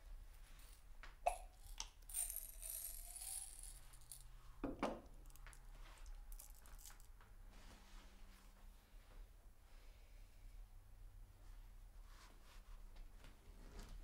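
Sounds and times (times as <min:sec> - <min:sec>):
pills rattling in glass jar: 0:00.6 - 0:04.3, 0:05.1 - 0:07.1.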